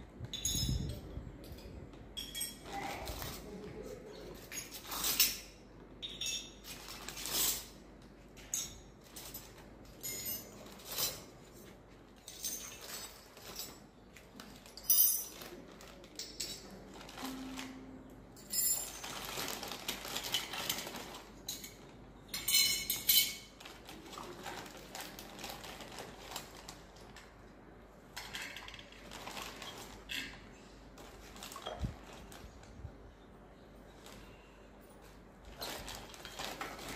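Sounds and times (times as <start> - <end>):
metal utensils clinking: 18.4 - 23.6.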